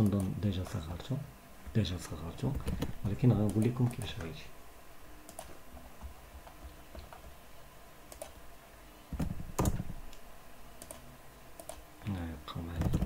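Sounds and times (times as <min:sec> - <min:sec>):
mouse clicks: 0:08.1 - 0:08.4, 0:10.8 - 0:11.0, 0:11.6 - 0:11.8
keyboard keystrokes: 0:09.2 - 0:10.0.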